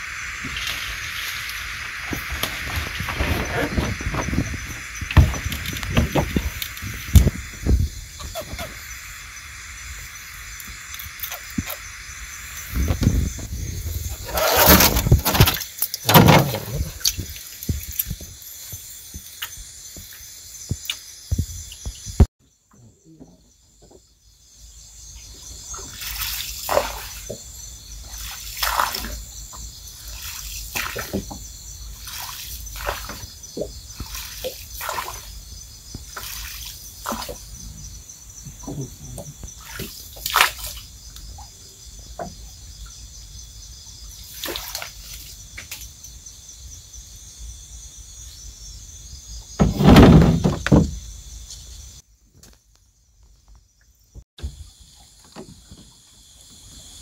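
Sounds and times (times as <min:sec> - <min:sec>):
water sloshing and splashing: 0:00.0 - 0:08.9, 0:12.6 - 0:19.4, 0:25.6 - 0:37.7, 0:38.6 - 0:40.9, 0:44.1 - 0:45.9.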